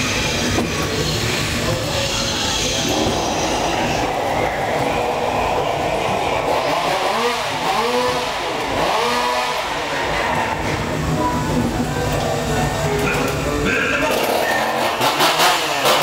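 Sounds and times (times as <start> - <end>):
steady rumbling ride noise: 0.0 - 16.0
chainsaw revving: 5.8 - 10.4, 14.1 - 16.0.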